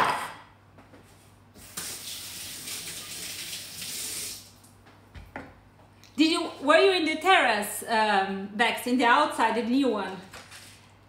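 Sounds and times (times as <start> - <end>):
tap water running over hands: 1.6 - 4.5.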